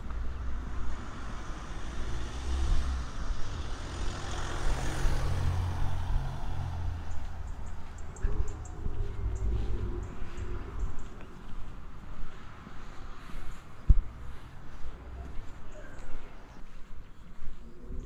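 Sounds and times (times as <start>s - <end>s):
vehicle passing by: 0.0s - 16.7s
low rumble: 6.0s - 11.4s.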